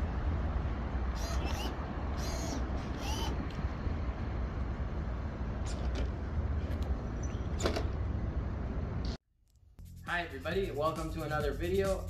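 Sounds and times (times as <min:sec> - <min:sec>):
road traffic rumble: 0:00.0 - 0:09.2
high squeaks: 0:01.2 - 0:03.4.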